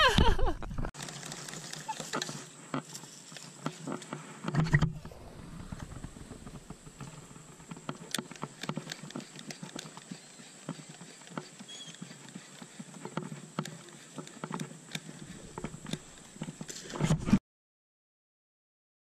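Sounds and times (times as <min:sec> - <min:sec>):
fishing reel clicks and knocks: 0:07.9 - 0:10.1.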